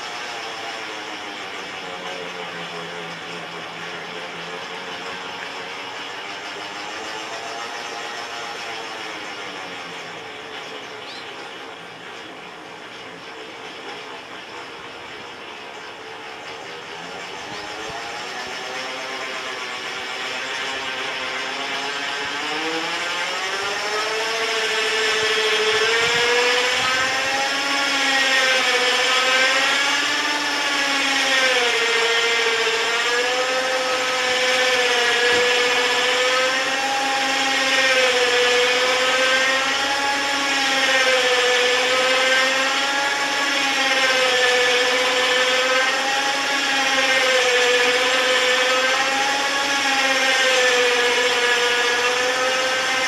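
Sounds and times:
electric motor whining: 0:00.0 - 0:53.0.

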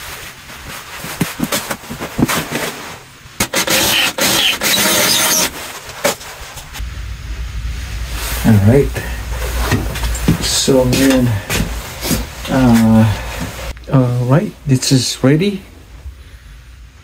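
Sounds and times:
power drill running: 0:03.4 - 0:05.5.

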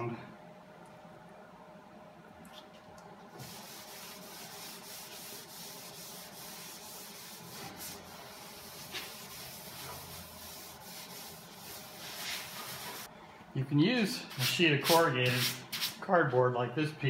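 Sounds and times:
cloth rubbing on metal: 0:03.4 - 0:13.1.

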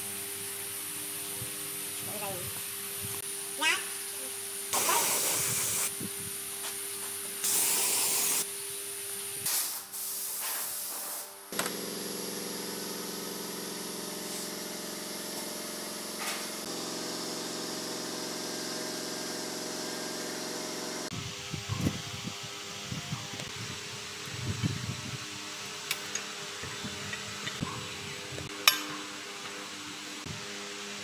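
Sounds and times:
spraying hiss: 0:04.7 - 0:05.9, 0:07.4 - 0:08.5, 0:09.4 - 0:11.3
electric motor humming: 0:11.5 - 0:23.6.

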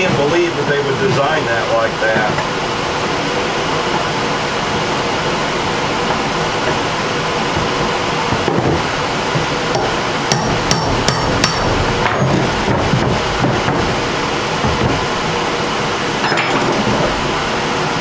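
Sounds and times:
steady background hum: 0:00.0 - 0:18.0
hammer tapping steel punch: 0:09.8 - 0:12.5
ringing hammer blows: 0:09.8 - 0:15.2.

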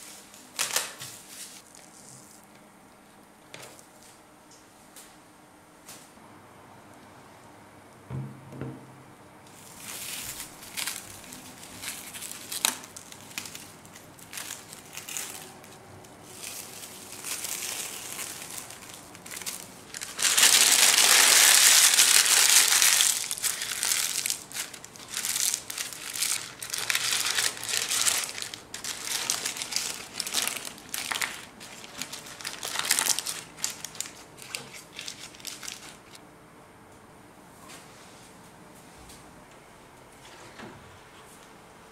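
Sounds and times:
wet baking paper crumpled: 0:00.0 - 0:02.5, 0:09.5 - 0:36.2
cling film crinkling: 0:09.5 - 0:36.2.

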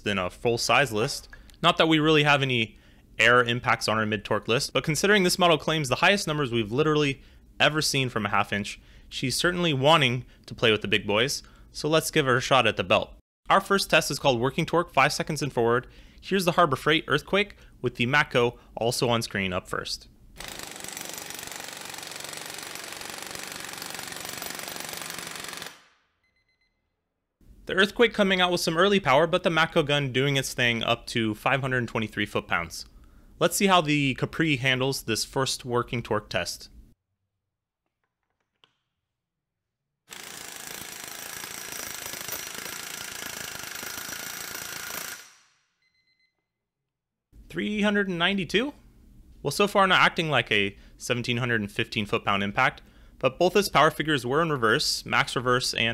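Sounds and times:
air impact wrench hammering: 0:20.4 - 0:25.9, 0:40.1 - 0:45.6.

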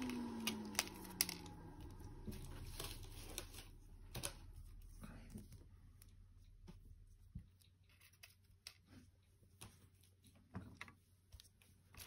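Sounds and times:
low falling hum: 0:00.0 - 0:04.8.

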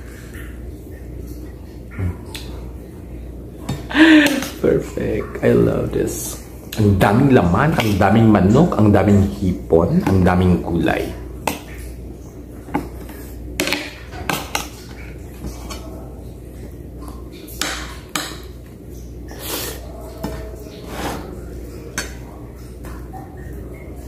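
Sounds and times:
eating noises: 0:00.0 - 0:02.9, 0:14.6 - 0:24.0
low steady hum: 0:00.0 - 0:24.0.

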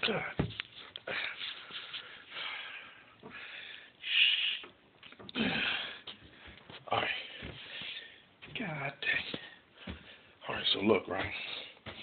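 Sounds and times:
man breathing heavily: 0:00.0 - 0:04.7, 0:05.3 - 0:10.4
man moaning: 0:05.3 - 0:06.0.

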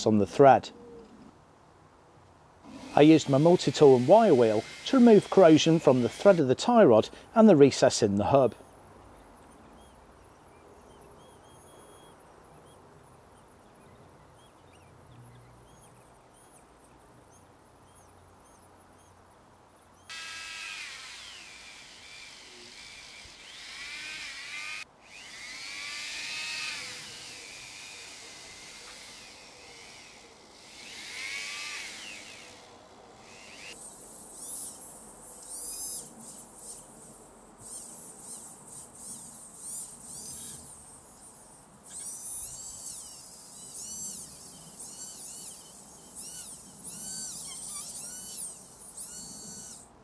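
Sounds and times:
rotary tool wire brushing metal: 0:02.7 - 0:08.6, 0:33.3 - 0:49.9.

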